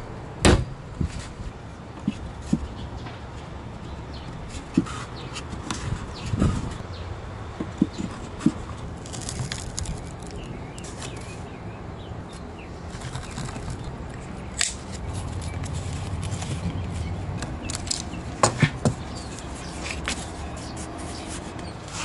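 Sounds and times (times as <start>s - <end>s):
hands rustling wooden parts: 7.6s - 11.5s, 12.2s - 22.0s.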